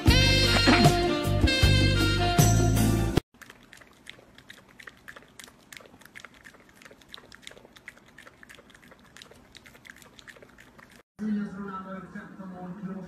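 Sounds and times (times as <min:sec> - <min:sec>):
dog lapping and slurping: 0:03.3 - 0:11.1.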